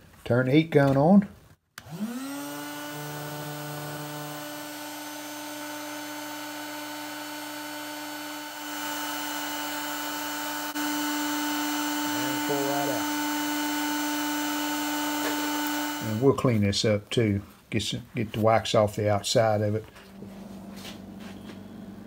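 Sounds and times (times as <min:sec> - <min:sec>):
heat gun fan whine: 0:01.8 - 0:16.4.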